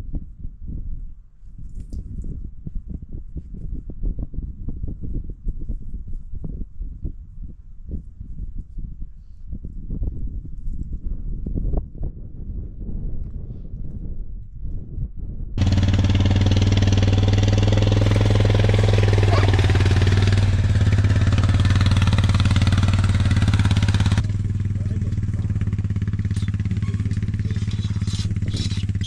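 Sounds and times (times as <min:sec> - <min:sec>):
atv engine running: 0:15.6 - 0:29.0.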